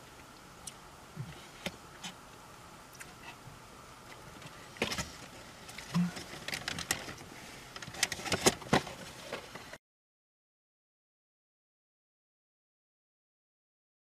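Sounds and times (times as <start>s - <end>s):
faint steady hum: 0.0s - 9.8s.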